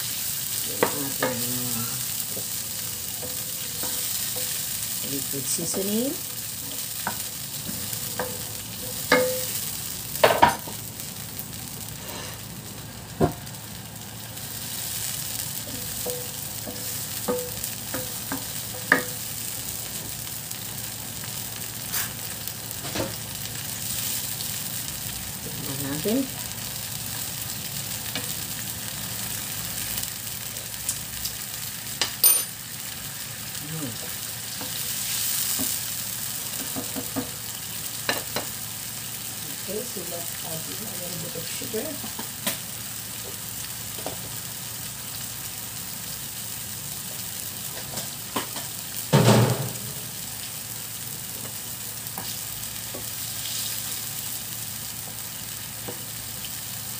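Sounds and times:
sauce sizzling in a frying pan: 0.0s - 56.9s
wooden spoon knocking on pan: 6.7s - 9.6s, 15.7s - 19.2s, 36.5s - 37.4s.

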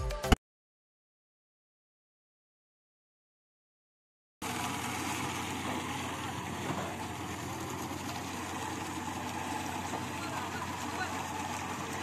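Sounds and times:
marine engine idling: 4.4s - 12.0s.

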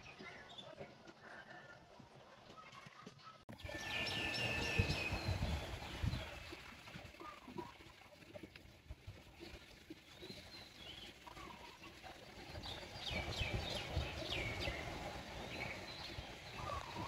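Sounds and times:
birds chirping: 2.4s - 7.7s, 9.4s - 17.0s.

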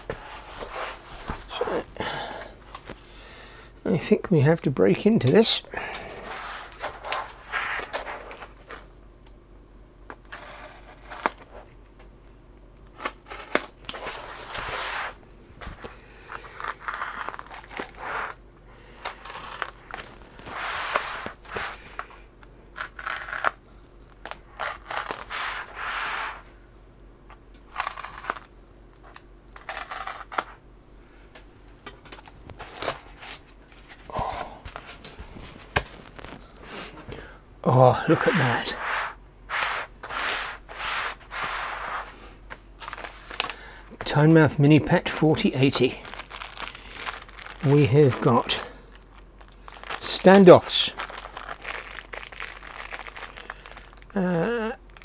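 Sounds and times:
packing tape tearing: 10.2s - 11.5s, 12.8s - 18.4s, 19.0s - 22.1s, 22.8s - 26.4s, 27.7s - 30.6s, 32.1s - 34.1s, 45.7s - 55.0s.

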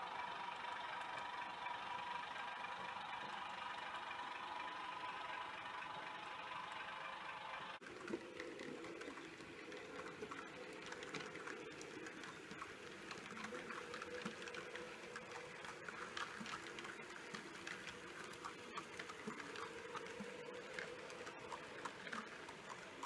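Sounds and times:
model train motor whir: 0.0s - 7.8s.

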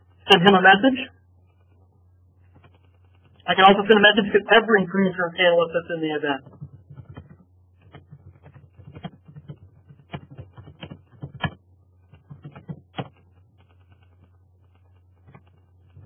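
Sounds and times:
low steady hum: 0.0s - 16.0s
computer keyboard typing: 6.4s - 16.0s.

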